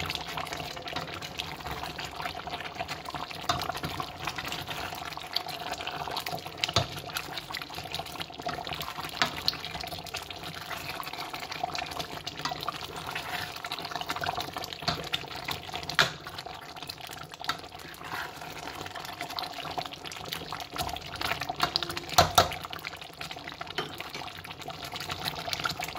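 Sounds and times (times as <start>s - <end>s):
curry bubbling in a pot: 0.0s - 25.9s
spoon knocking on a pot: 22.1s - 22.6s.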